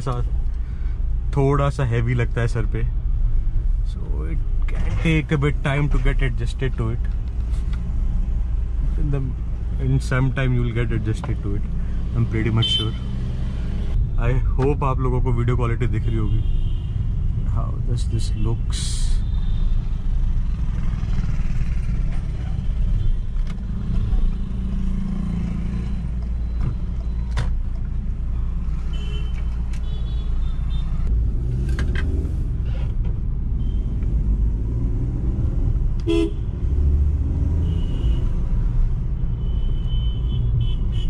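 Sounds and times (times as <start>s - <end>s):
car engine and road rumble: 0.0s - 41.0s
car horns honking: 36.0s - 36.5s, 39.4s - 41.0s.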